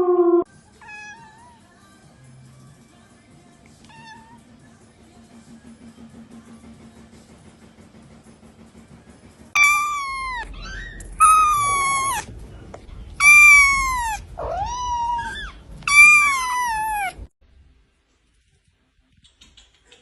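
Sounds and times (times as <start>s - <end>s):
kitten meowing: 9.6s - 12.3s, 13.2s - 17.2s.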